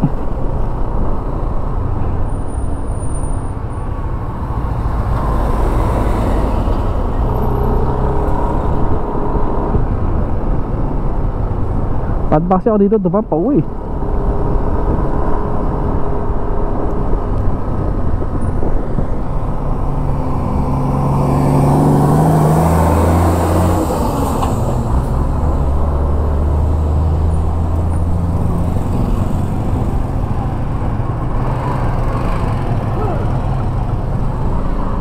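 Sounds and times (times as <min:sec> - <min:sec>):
diesel engine drone: 0:00.0 - 0:35.0
wind on microphone: 0:04.8 - 0:12.3, 0:13.6 - 0:24.0.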